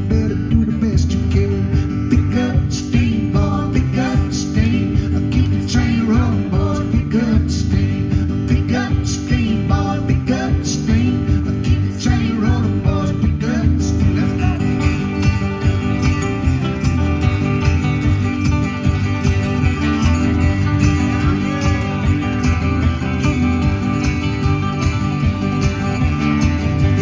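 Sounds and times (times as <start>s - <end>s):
man singing: 0.0s - 15.1s, 20.9s - 22.4s
bass guitar line: 0.0s - 27.0s
strummed acoustic guitars: 0.0s - 27.0s.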